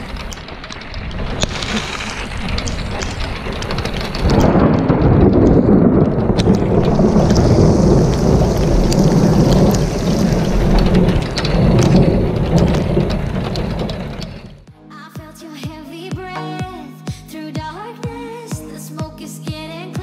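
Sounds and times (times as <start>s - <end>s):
deep rumble of thunder: 0.0s - 14.7s
steady rain: 0.0s - 14.7s.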